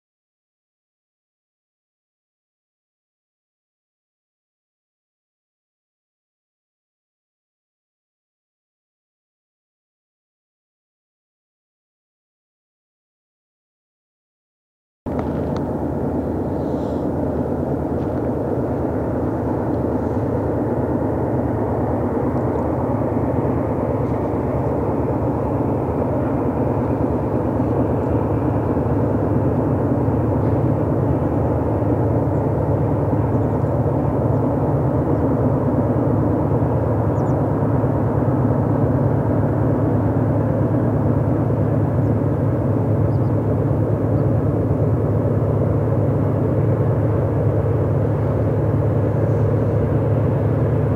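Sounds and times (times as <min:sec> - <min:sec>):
locomotive engine rumble: 0:15.1 - 0:50.9.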